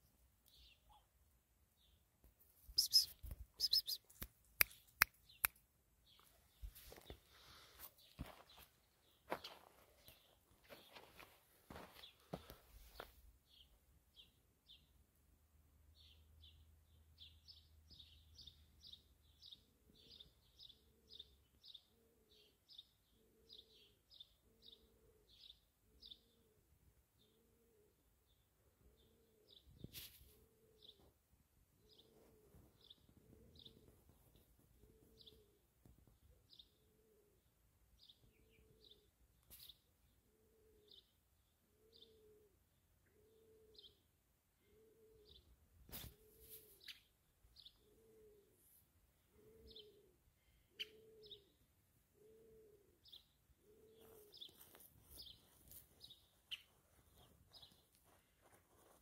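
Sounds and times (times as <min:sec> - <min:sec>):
high bird chirps: 0:02.8 - 0:05.4
bird cooing: 0:19.9 - 0:26.6, 0:27.2 - 0:28.1, 0:30.3 - 0:31.1, 0:31.8 - 0:35.6, 0:36.5 - 0:39.1, 0:40.2 - 0:45.5, 0:47.6 - 0:48.6, 0:49.2 - 0:56.8.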